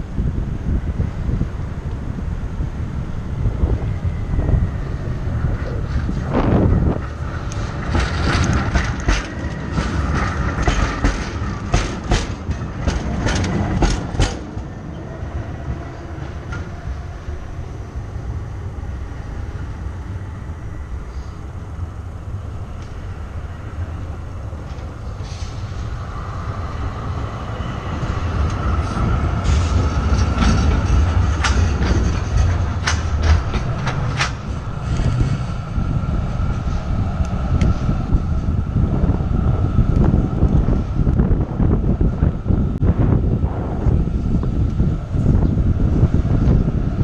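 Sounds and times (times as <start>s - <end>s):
tram passing with whine: 0.0s - 47.0s
tram wheels clattering over rail joints: 0.0s - 47.0s.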